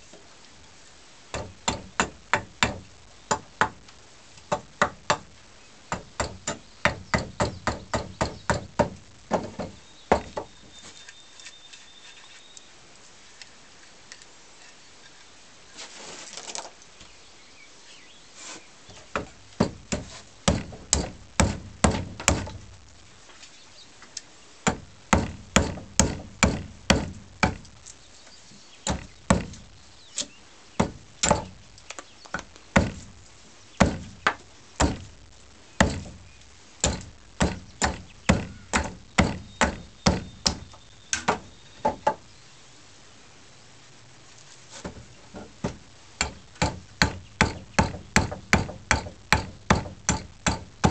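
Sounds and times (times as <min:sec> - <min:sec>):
axe chopping wood: 0:19.1 - 0:22.6, 0:24.7 - 0:27.8, 0:28.9 - 0:29.6, 0:30.8 - 0:31.6, 0:32.3 - 0:33.1, 0:33.8 - 0:35.1, 0:35.8 - 0:36.2, 0:36.8 - 0:40.6, 0:45.6 - 0:50.9.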